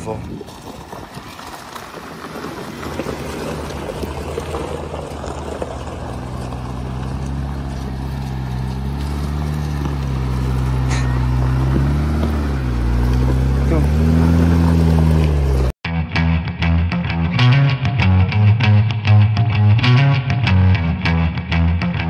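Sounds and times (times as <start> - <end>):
tyres rumbling on gravel: 0.0 - 15.8
engine under load: 0.4 - 15.8.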